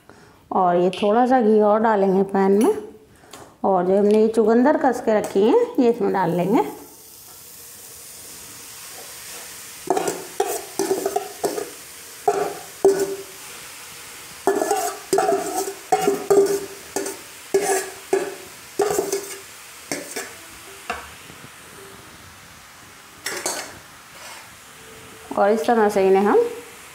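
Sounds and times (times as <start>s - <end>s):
beetroot sizzling in hot fat: 4.6s - 26.9s
metal spatula tapping steel bowl: 9.9s - 11.7s, 12.3s - 13.2s, 14.5s - 20.3s.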